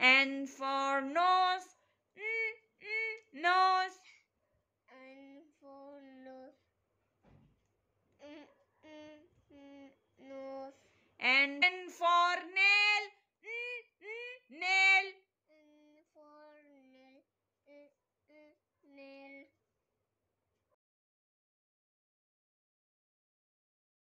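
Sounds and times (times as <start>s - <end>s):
high voice singing: 11.2s - 15.1s.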